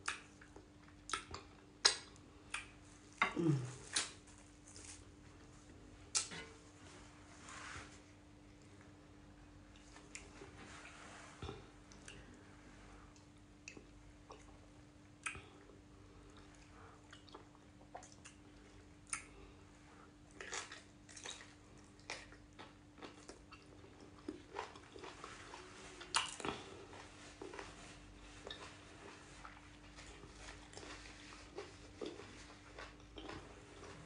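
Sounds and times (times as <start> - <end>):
faint steady hum: 0.0 - 34.0
wet mouth smacks and clicks: 1.1 - 2.7.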